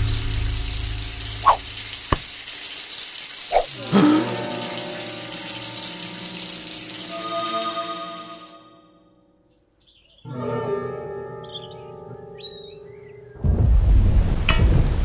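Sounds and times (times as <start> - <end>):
shower spray running: 0.0 - 7.6.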